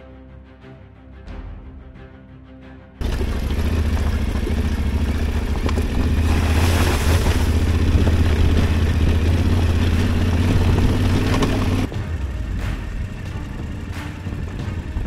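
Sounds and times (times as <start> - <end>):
motorcycle engine running: 3.0 - 15.0.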